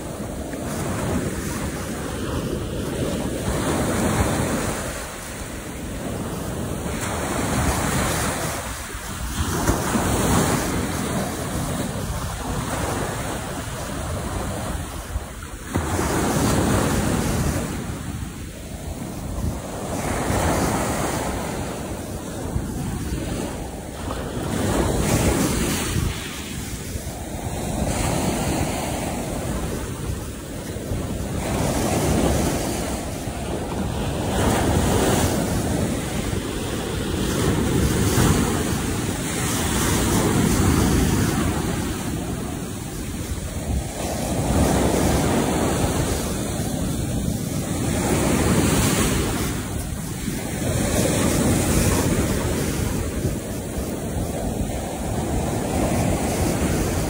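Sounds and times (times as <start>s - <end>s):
ocean surf breaking: 0.0s - 57.0s
wind buffeting microphone: 0.0s - 57.0s.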